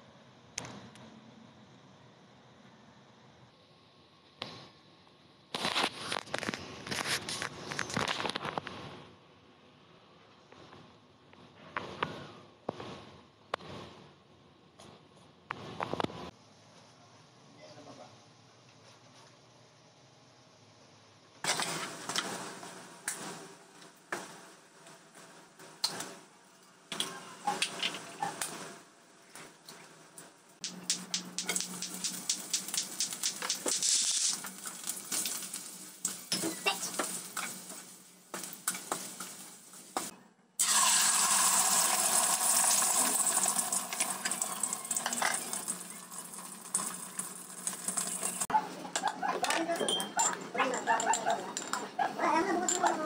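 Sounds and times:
egg sizzling in hot oil: 30.6 - 48.5.

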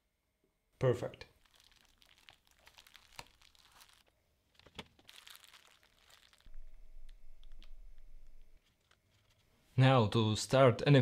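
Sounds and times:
low steady hum: 0.0 - 10.7
bubble wrap crinkling: 1.3 - 9.7.

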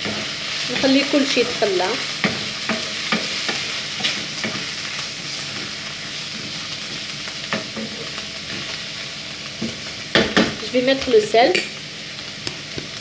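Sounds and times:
wooden spatula scraping a pan: 0.0 - 8.8
food sizzling in a frying pan: 0.0 - 13.0.

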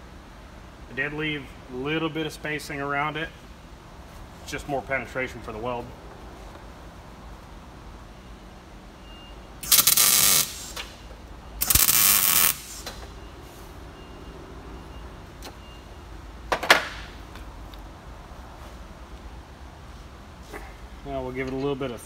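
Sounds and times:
arc welder crackling: 9.6 - 11.0, 11.6 - 13.0.

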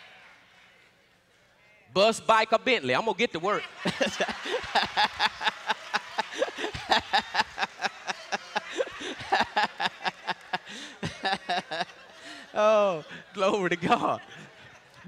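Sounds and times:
people clapping: 0.0 - 1.5, 3.9 - 12.4
people laughing: 3.4 - 15.0.

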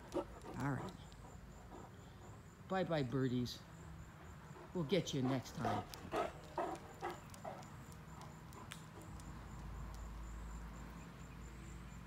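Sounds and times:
footsteps on brick pavers: 4.8 - 10.2.

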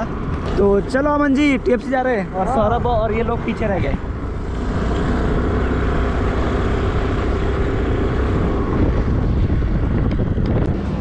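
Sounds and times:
faint engine hum: 0.0 - 11.0
motorbike engine rumble: 0.0 - 11.0
wind on microphone: 2.6 - 11.0.

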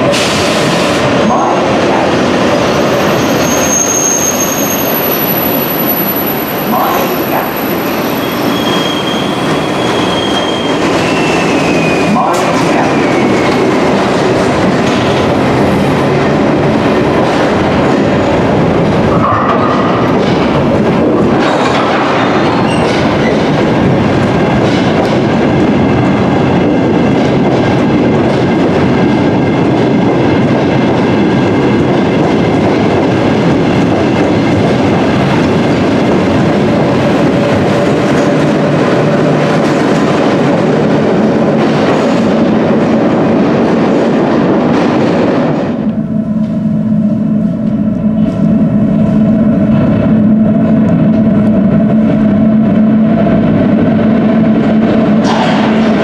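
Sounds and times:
train wheels rumbling over rails: 0.0 - 56.0.

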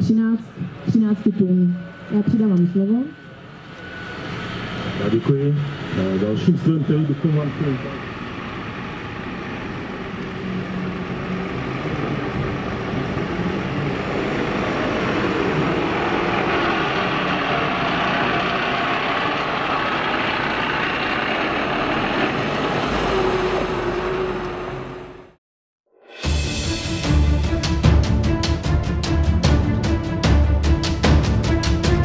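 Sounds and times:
diesel truck engine under load: 3.3 - 25.4.

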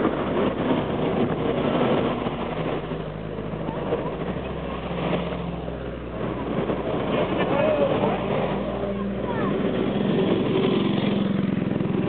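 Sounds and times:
jeep engine droning: 0.0 - 12.0
military vehicle engines rumbling: 0.0 - 12.0.

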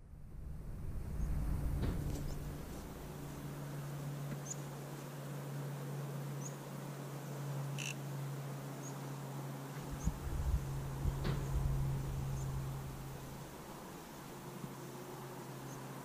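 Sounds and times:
steady low hum: 0.0 - 16.0
small bird chirping: 7.7 - 8.0.

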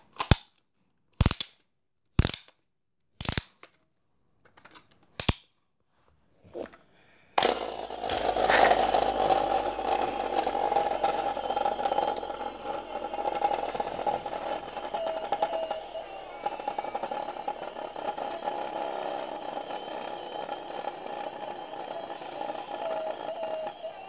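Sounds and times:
machine running steadily: 7.4 - 24.0.

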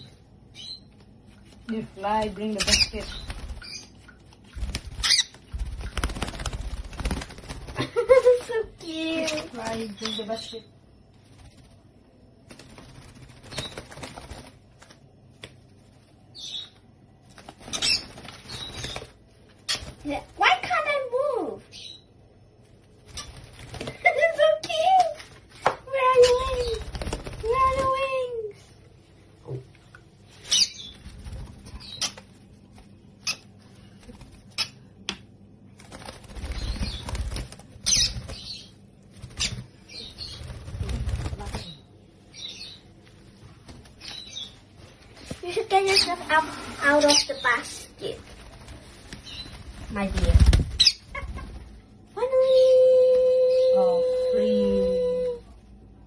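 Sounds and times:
birds flapping wings on tiles: 1.0 - 21.3, 22.6 - 28.5, 30.3 - 53.8
lovebird high-pitched calls: 5.0 - 5.4, 30.4 - 31.0, 37.8 - 38.7, 50.7 - 51.4.

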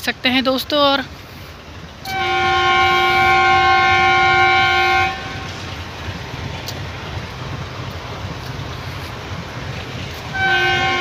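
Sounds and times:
locomotive horn blast: 2.0 - 5.7, 10.3 - 11.0.

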